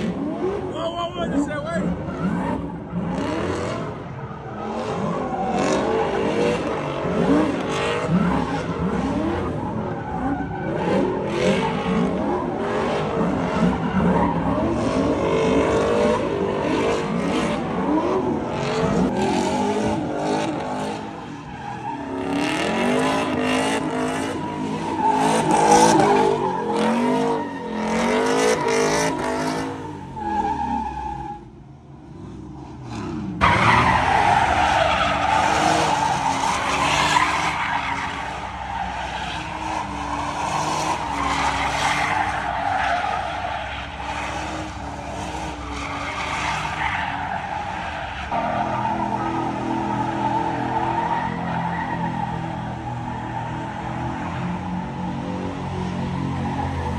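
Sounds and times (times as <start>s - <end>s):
car engine revving: 0.0s - 30.9s
tires skidding and squealing: 0.0s - 56.9s.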